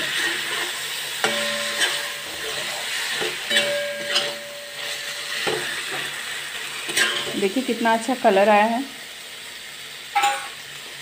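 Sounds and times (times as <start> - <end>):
spatula scraping a pan: 0.0 - 7.5
spices sizzling in oil: 0.0 - 11.0.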